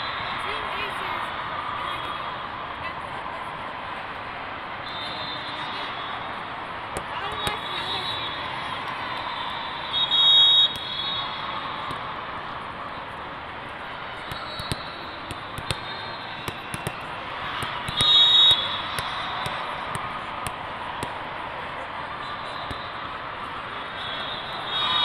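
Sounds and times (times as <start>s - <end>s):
crowd chatter: 0.0s - 25.0s
ball bouncing on court: 6.9s - 8.0s, 11.8s - 12.1s, 14.2s - 21.2s, 22.6s - 22.9s
referee whistle blast: 9.5s - 11.6s, 17.9s - 19.6s, 24.0s - 25.0s.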